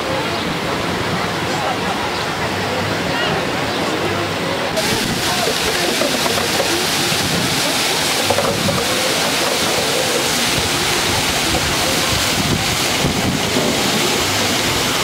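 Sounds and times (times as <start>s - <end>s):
waterfall rushing into pool: 0.0s - 15.0s.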